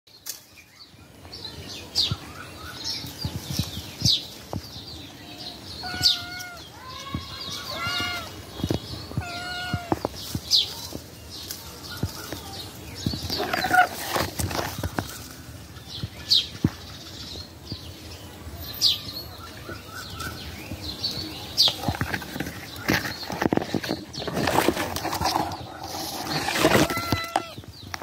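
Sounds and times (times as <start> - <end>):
kitten meowing: 5.8 - 6.6, 7.6 - 8.3, 9.2 - 10.0, 26.8 - 27.6.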